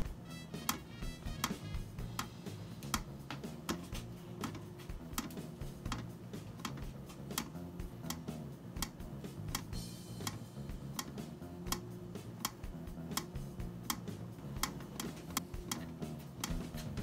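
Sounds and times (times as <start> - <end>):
sharp ticking clicks: 0.0 - 3.8, 4.4 - 16.7
soft low background music: 0.0 - 17.0.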